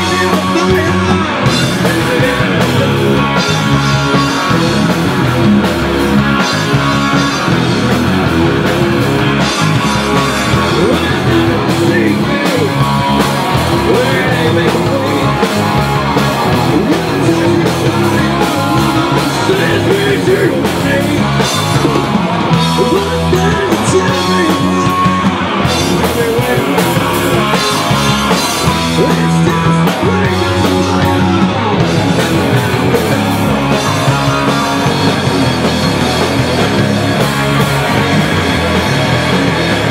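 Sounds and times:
lead vocals singing: 0.0 - 5.5, 6.2 - 39.9
bass guitar: 0.0 - 39.9
drum kit: 0.0 - 39.9
electric guitar: 0.0 - 39.9.

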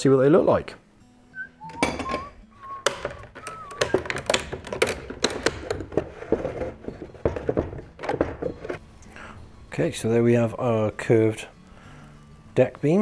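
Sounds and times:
plastic clamp clicks and knocks: 2.8 - 6.6.

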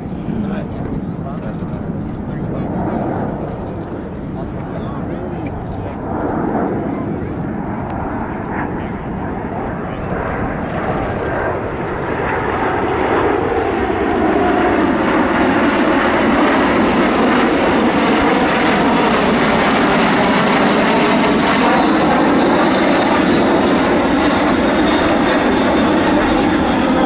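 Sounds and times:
jet engines rushing overhead: 0.0 - 27.0.

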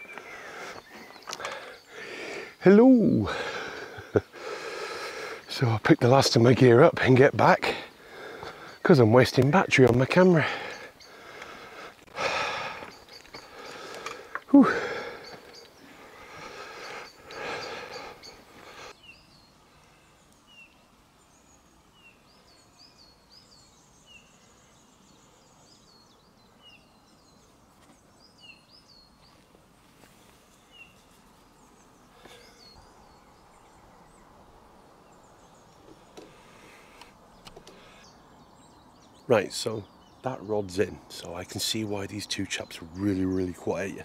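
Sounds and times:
small birds chirping: 0.0 - 44.0
rustling noise: 29.2 - 31.6.

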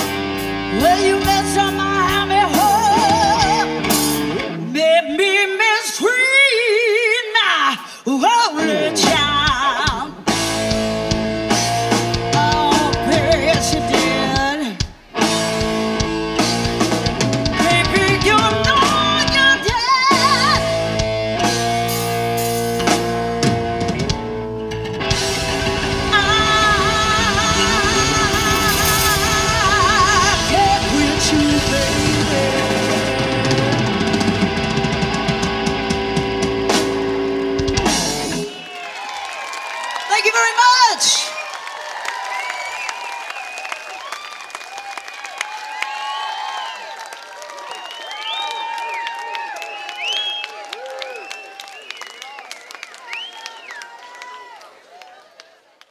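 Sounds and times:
bass guitar: 0.0 - 5.0, 8.6 - 38.6
electric guitar: 0.0 - 5.7, 8.5 - 38.7
drums: 0.0 - 39.2.

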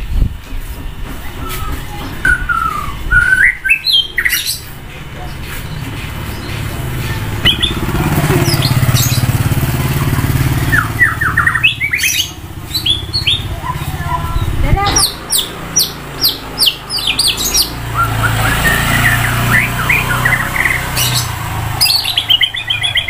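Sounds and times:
bird singing whistles and chatter: 1.2 - 4.7, 5.3 - 9.4, 10.2 - 23.0
vehicle engine pulsing rumble: 4.5 - 23.0.

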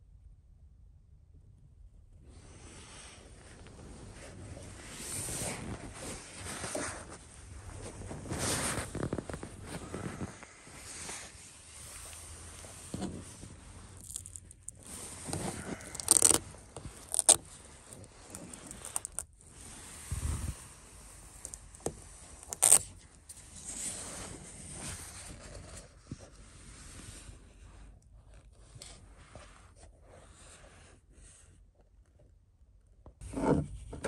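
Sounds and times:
scraping and rustling handling noises: 3.2 - 27.4.

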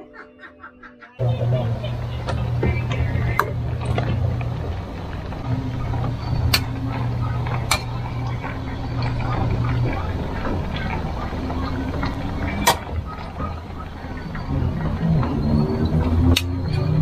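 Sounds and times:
low hum: 1.2 - 17.0.

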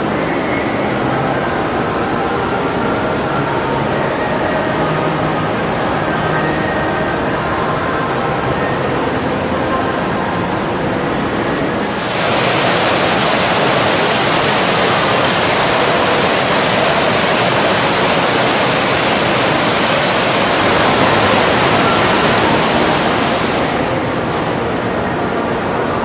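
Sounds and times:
water rushing down a fountain: 11.9 - 25.0.

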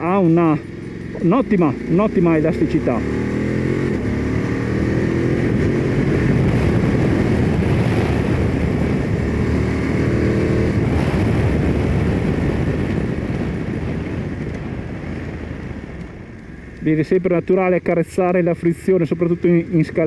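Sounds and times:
wind rushing: 3.1 - 16.4.

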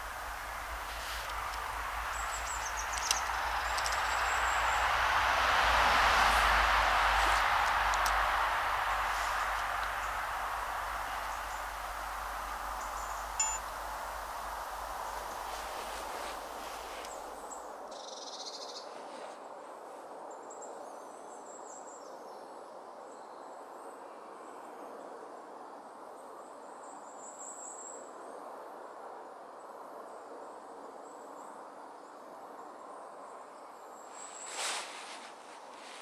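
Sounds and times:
soft background hiss: 0.0 - 19.5
faint high chirps: 7.4 - 17.3.

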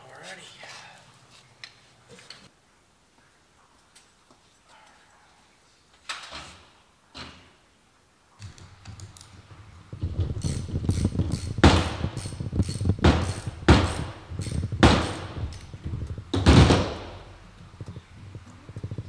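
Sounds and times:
socket ratchet ratcheting: 10.4 - 15.7
sharp knocks: 11.2 - 15.6.

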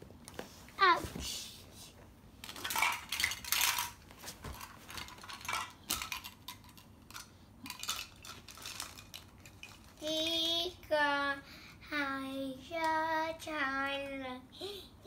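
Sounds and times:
plastic toy pieces clattering: 2.4 - 10.0.

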